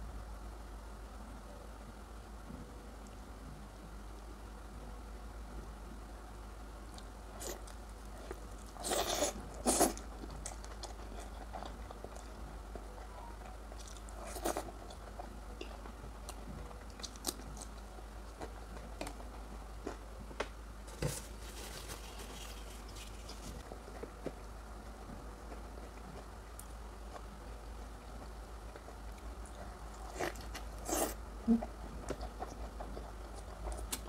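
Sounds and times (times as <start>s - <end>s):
person chewing with crunches: 7.0s - 20.0s, 28.1s - 34.0s.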